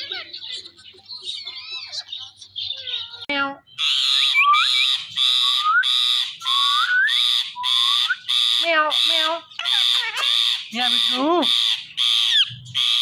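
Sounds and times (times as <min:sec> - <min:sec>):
parakeet chirping and screeching: 0:00.0 - 0:13.0
rising whistles: 0:03.9 - 0:08.3.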